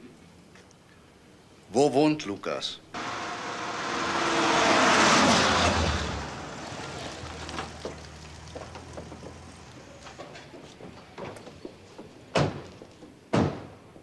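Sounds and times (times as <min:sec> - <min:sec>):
motor vehicle passing by: 0:03.0 - 0:10.2.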